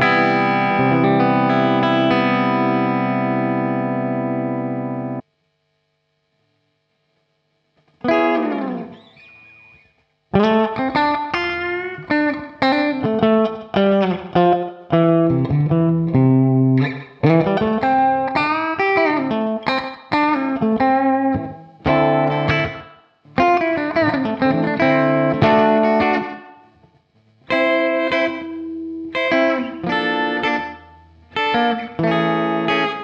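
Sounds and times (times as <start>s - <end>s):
electric guitar chord sliding down: 0.0s - 5.2s, 8.0s - 19.8s
electric guitar lead phrase: 0.0s - 5.2s, 8.0s - 26.7s, 27.5s - 33.0s.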